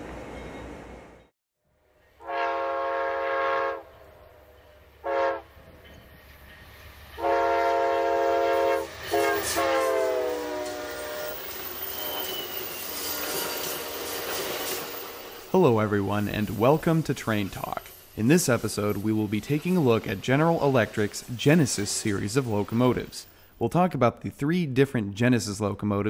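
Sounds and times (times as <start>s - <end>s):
rumble of passing train: 0.0s - 23.4s
train air horn blasts: 2.2s - 4.0s, 5.0s - 5.6s, 7.2s - 14.5s.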